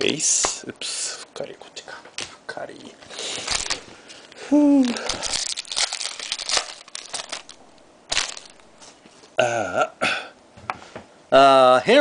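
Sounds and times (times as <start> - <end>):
foil wrapper crinkling: 3.2 - 9.3.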